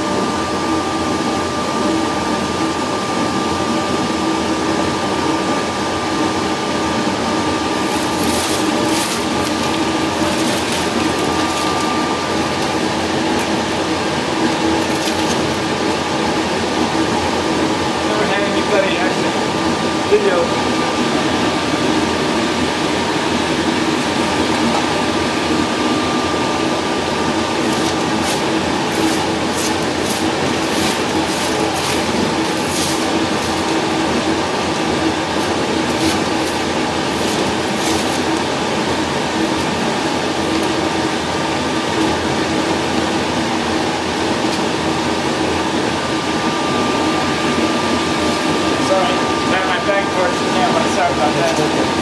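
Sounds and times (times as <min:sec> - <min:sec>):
machine humming: 0:00.0 - 0:52.0
bone fragments scraping metal tray: 0:07.8 - 0:11.9, 0:27.7 - 0:33.8, 0:35.4 - 0:38.3.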